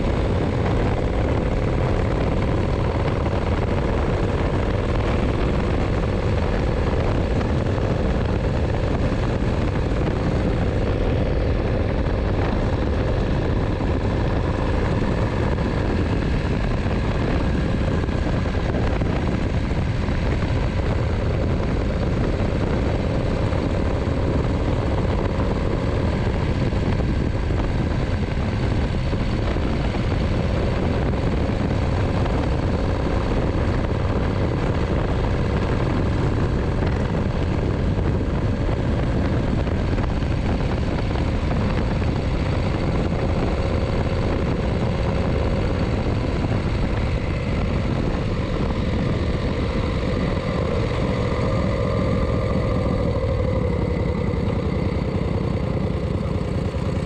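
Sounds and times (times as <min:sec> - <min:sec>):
motorcycle engine running: 0:00.0 - 0:57.0
wind and road noise: 0:00.0 - 0:57.0.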